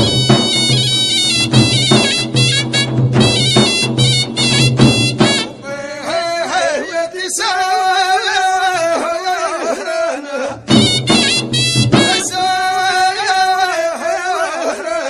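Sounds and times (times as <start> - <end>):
wind instrument over drone: 0.0 - 6.0
solo voice singing melismatic: 5.6 - 15.0.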